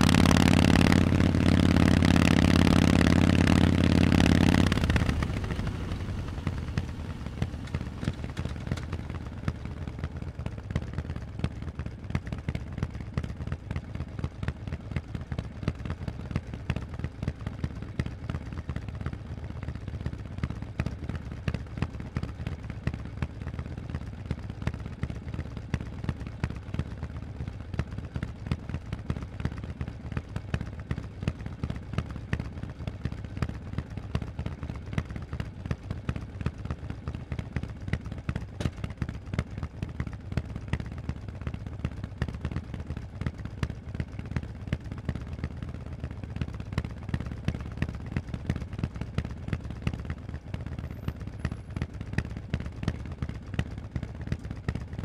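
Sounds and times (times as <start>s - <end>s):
motorcycle engine revving: 0.0s - 10.2s
motorcycle engine idling: 0.0s - 55.0s.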